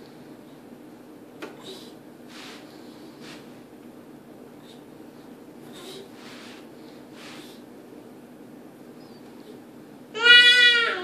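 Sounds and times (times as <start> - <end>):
low room hum: 0.0 - 11.0
soft rustles: 2.2 - 3.7, 4.7 - 7.6.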